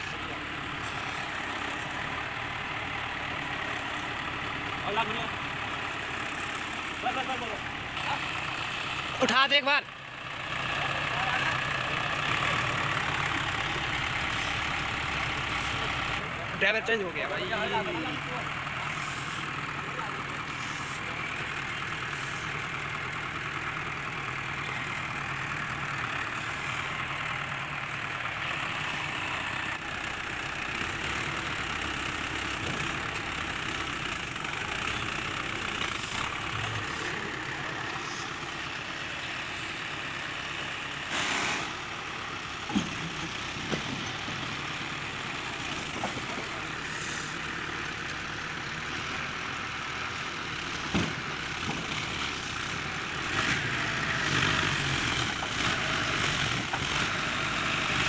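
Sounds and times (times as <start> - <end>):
tractor diesel engine straining: 0.0 - 58.0.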